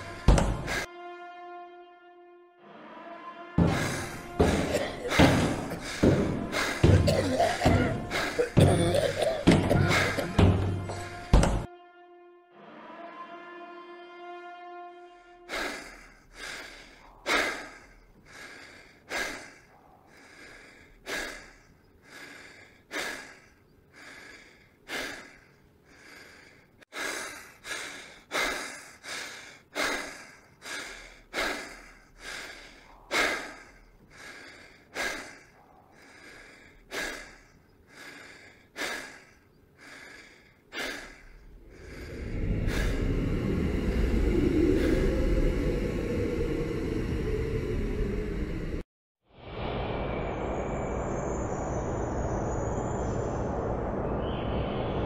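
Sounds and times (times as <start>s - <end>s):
person breathing heavily: 0.0s - 0.9s, 3.6s - 11.7s, 15.5s - 48.9s
low rumble: 41.4s - 55.0s.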